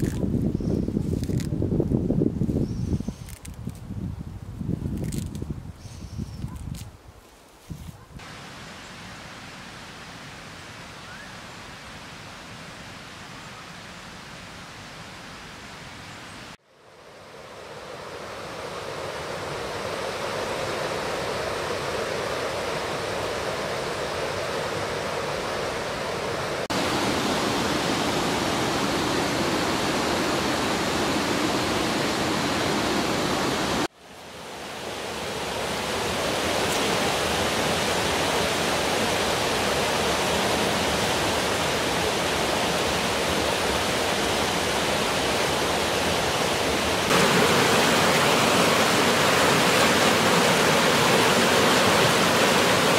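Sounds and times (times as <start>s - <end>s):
river rushing over stones: 8.2s - 15.6s, 18.0s - 52.9s.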